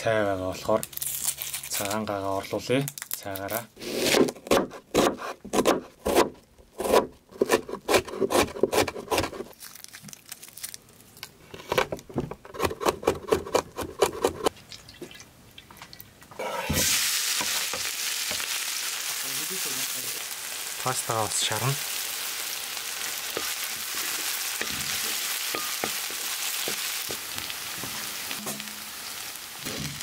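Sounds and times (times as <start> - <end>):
cleaver chopping on wooden board: 4.1 - 9.4
food sizzling in hot oil: 16.4 - 30.0.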